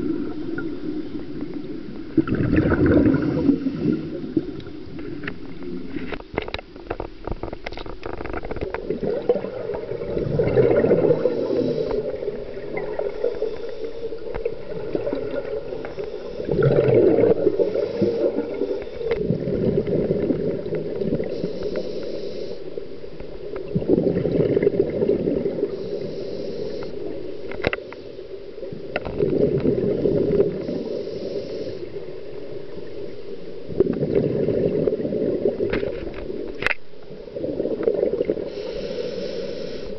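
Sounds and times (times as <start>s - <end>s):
regulator bubbles exhaled underwater: 0.0s - 21.9s, 22.8s - 27.9s, 28.6s - 39.4s
hissing inhales: 11.2s - 12.2s, 17.6s - 19.0s, 21.2s - 22.7s, 25.7s - 27.1s, 30.6s - 32.0s, 38.5s - 39.9s.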